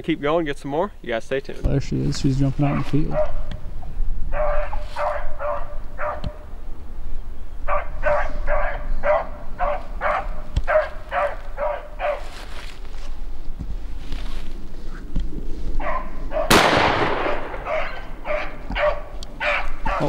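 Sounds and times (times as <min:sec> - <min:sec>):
dog barking: 0:02.6 - 0:03.4, 0:04.3 - 0:06.4, 0:07.7 - 0:12.4, 0:15.8 - 0:16.6, 0:17.3 - 0:20.0.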